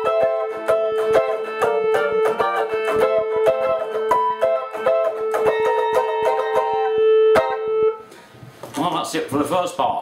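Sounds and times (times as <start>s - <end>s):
electric mandolin picked melody: 0.0s - 8.1s
ringing drone note: 5.3s - 8.1s.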